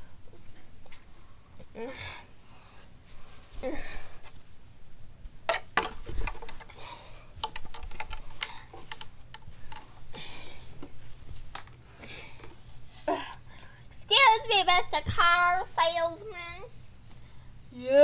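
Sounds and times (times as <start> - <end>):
toys clicking and knocking: 7.4 - 9.9.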